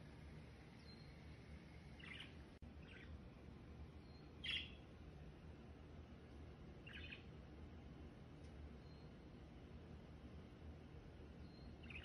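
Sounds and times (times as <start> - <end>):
bird chirping: 0.7 - 3.2, 4.0 - 4.9, 6.8 - 7.3, 8.7 - 9.4, 11.3 - 12.0.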